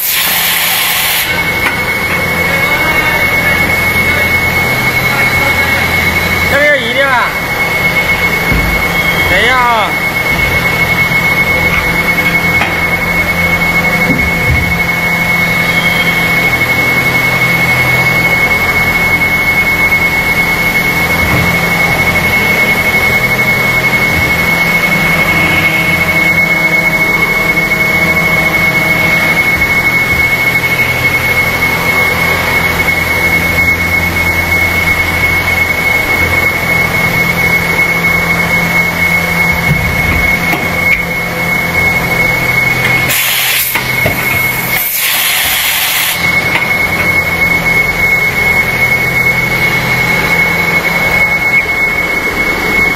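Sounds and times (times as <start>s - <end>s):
injection molding machine humming: 0.0s - 52.9s.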